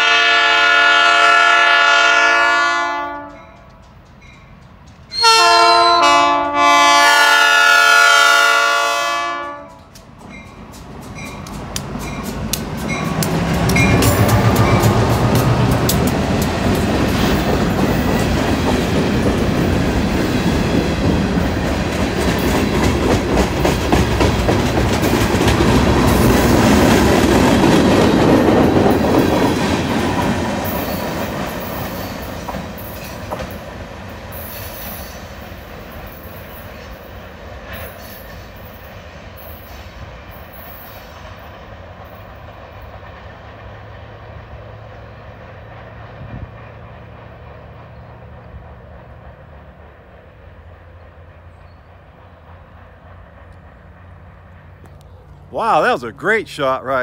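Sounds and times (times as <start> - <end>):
wheels clicking over rail joints: 3.5 - 5.2, 9.7 - 43.8
freight cars rolling past: 9.3 - 57.0.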